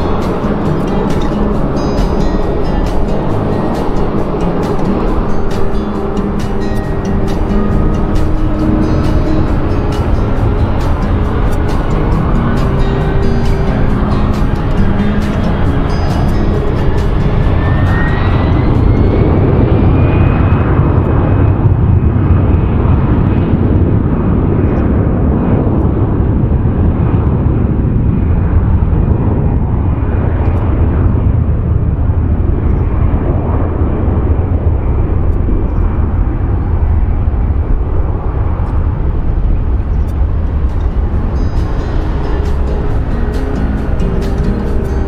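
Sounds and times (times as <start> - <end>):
jet engine roar: 0.0 - 45.0
jet engine whine: 0.0 - 45.0.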